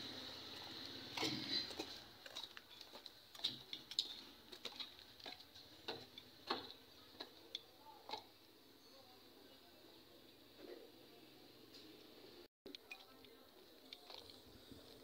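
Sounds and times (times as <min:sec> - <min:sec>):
footsteps on gritty concrete stairs: 0:01.1 - 0:08.3.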